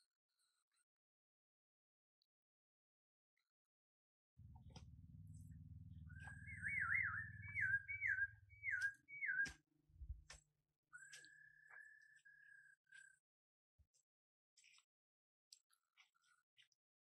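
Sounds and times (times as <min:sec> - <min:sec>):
warbling whistle-like tone: 0:06.2 - 0:09.5.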